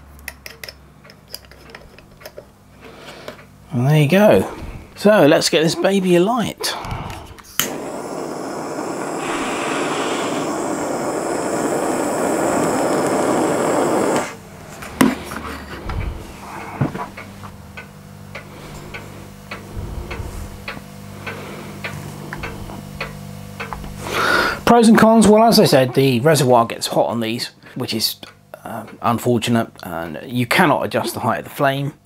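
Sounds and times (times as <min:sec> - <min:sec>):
gas lighter hissing: 0:06.6 - 0:14.4
lighter click: 0:07.1 - 0:14.4.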